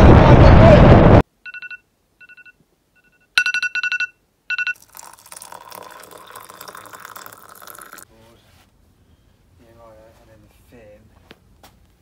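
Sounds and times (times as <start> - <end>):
phone alarm beeping: 1.4 - 4.8
water pouring into mug: 4.8 - 8.1.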